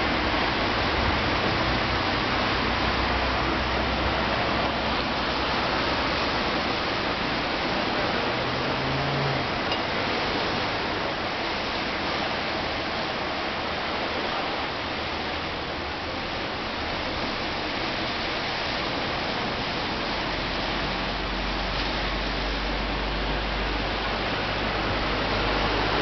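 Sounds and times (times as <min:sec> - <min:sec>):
steady rushing outdoor noise: 0:00.0 - 0:26.0.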